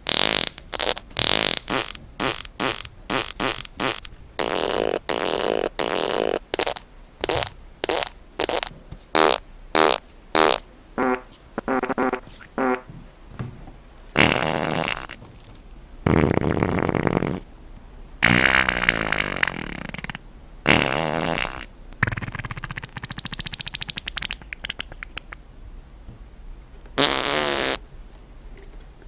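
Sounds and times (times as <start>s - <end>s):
long drawn-out farts: 0.0s - 12.9s, 14.2s - 15.2s, 16.0s - 17.5s, 18.2s - 21.7s, 27.0s - 27.8s
short farts: 0.0s - 12.9s, 14.2s - 15.2s, 16.0s - 17.5s, 18.2s - 22.2s, 27.0s - 27.8s.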